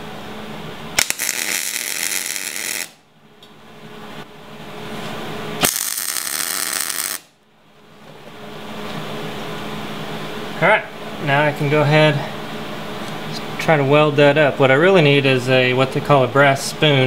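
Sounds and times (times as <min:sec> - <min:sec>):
welding arc crackle and hiss: 0:01.0 - 0:03.0, 0:05.6 - 0:07.4.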